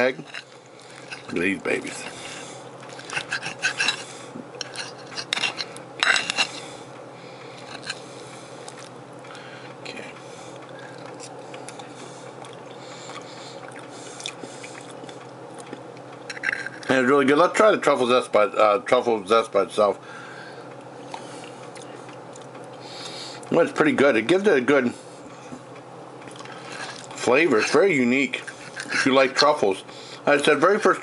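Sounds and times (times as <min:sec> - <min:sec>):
steady low hum: 0:00.0 - 0:31.0
fork scraping a ceramic plate: 0:03.0 - 0:06.7, 0:07.6 - 0:08.0, 0:26.6 - 0:29.3.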